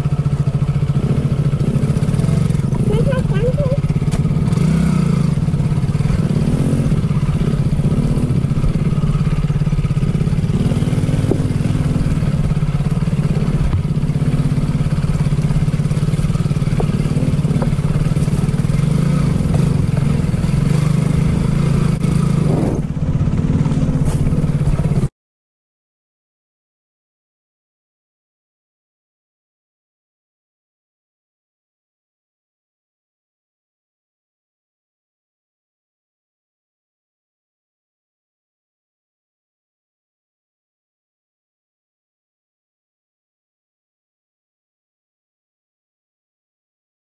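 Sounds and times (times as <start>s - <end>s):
small motorcycle engine running: 0.0s - 25.1s.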